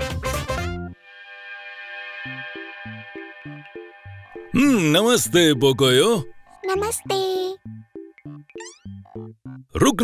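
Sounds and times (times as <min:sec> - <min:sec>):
held synthesizer chord: 0:01.0 - 0:04.8.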